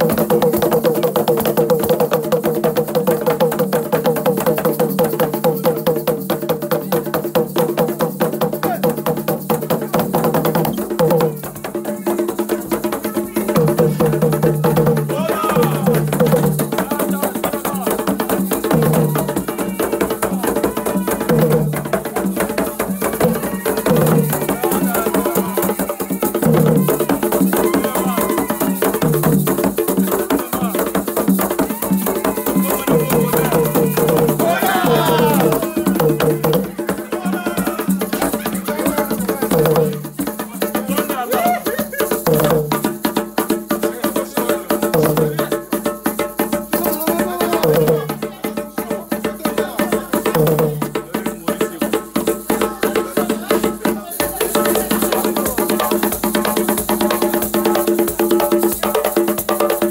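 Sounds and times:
music with rattles and percussion: 0.0s - 59.9s
voices singing: 11.8s - 29.0s, 30.3s - 40.0s, 46.7s - 50.8s.

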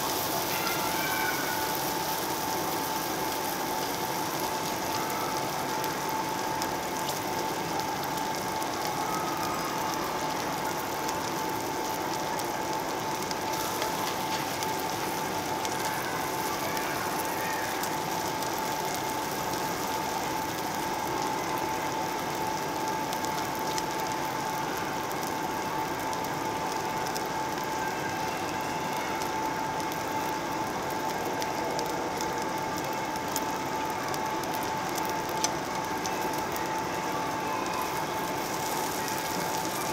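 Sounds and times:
pork sizzling on a grill: 0.0s - 39.9s
steady high hum: 0.0s - 39.9s.

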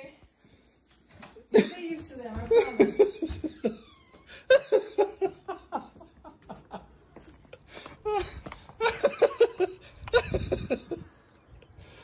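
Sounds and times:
person laughing: 8.1s - 11.1s.

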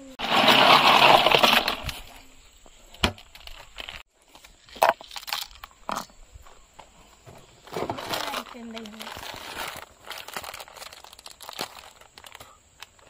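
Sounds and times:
ice chunks clinking: 0.2s - 2.1s
ice cubes rattling and crunching: 0.2s - 2.1s, 4.7s - 5.7s, 7.8s - 13.0s.

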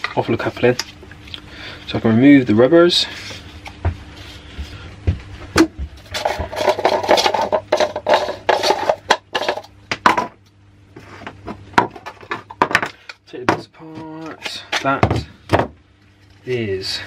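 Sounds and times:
scraping and rattling: 6.0s - 10.2s.

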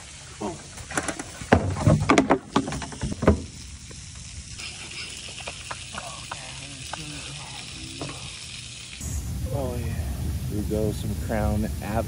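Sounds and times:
steady hiss: 0.0s - 12.0s
higher-pitched hiss: 2.7s - 12.0s.

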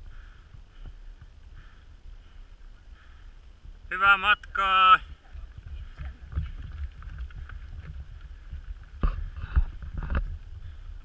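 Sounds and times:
runners' footsteps on dirt path: 0.0s - 11.0s
wind rumble on microphone: 5.0s - 11.0s.

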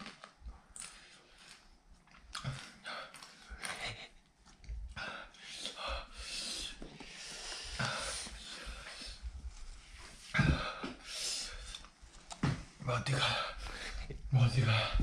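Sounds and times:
person breathing hard and wheezing: 5.0s - 9.4s, 10.1s - 11.9s.

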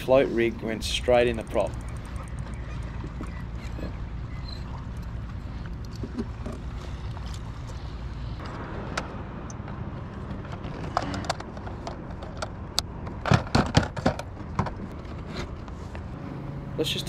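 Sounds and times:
low steady rumble: 0.0s - 8.5s
gear clicking and clattering: 0.7s - 7.8s.

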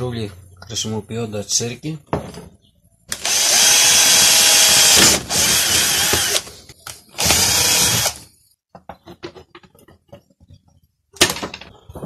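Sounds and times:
power drill drilling plastic: 3.1s - 6.5s, 7.2s - 8.3s.

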